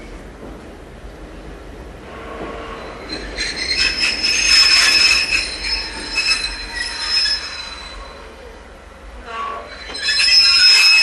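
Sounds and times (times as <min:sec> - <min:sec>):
train wheels squealing: 0:02.2 - 0:11.0.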